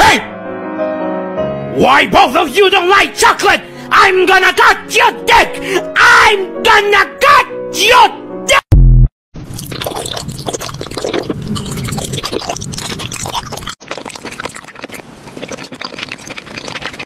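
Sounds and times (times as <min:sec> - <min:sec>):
candy crunching: 0:09.5 - 0:17.0.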